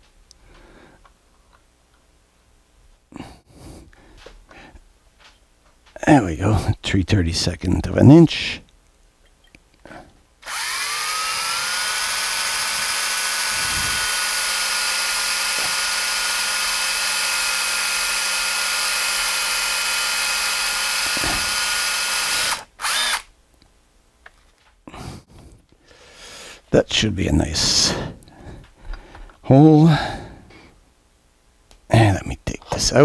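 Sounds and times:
electric drill whining: 10.4s - 23.3s.

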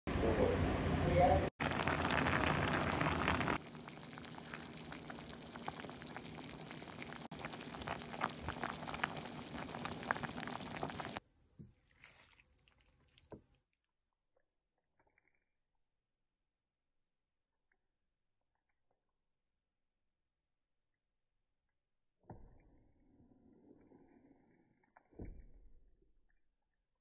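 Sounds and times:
broth bubbling at a boil: 1.6s - 11.2s.

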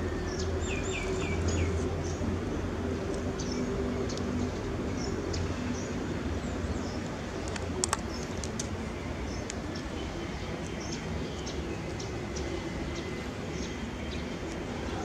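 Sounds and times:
small birds chirping: 0.0s - 2.3s, 3.1s - 15.0s
steady low hum: 0.0s - 15.0s
sharp clicks: 7.0s - 8.7s.

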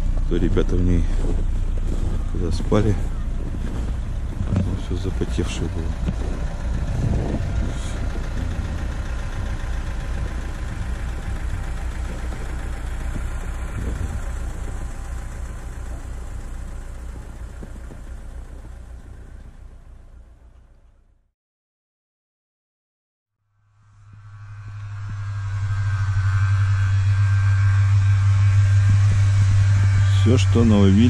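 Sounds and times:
car engine idling: 0.0s - 21.3s, 23.6s - 31.0s.

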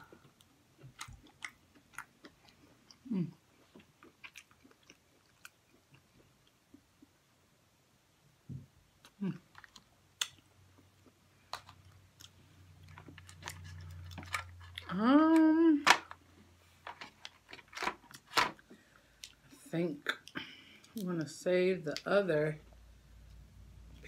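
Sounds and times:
person humming mmm: 3.0s - 3.4s.

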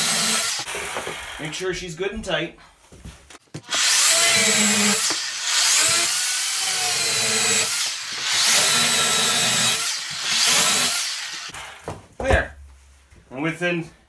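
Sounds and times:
electric chainsaw cutting wood: 0.0s - 1.5s, 3.6s - 11.8s.

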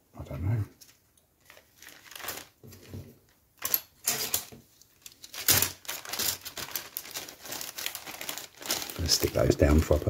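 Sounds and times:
plastic bag crinkling: 1.4s - 3.4s, 4.2s - 10.0s.

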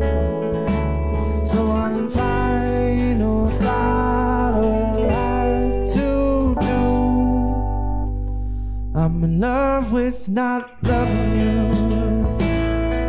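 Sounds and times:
drums: 0.0s - 7.0s, 10.8s - 13.0s
acoustic guitar strumming: 0.0s - 13.0s
bass guitar: 0.0s - 13.0s
electric guitar: 0.0s - 13.0s.

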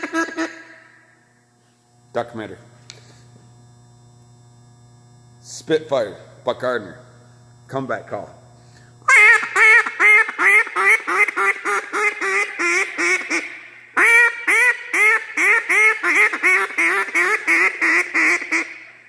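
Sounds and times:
duck call quacks: 0.0s - 0.6s, 9.1s - 18.8s.

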